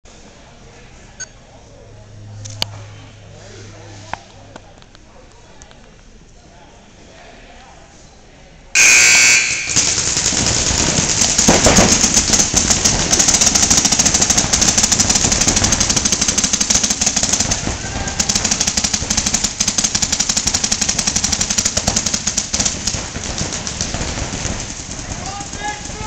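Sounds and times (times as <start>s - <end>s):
paintball markers firing: 8.8s - 26.0s.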